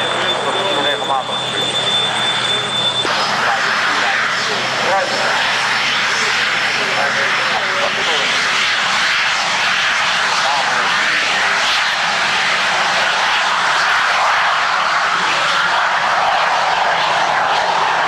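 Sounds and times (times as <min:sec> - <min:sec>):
jet engine roar: 0:00.0 - 0:18.0.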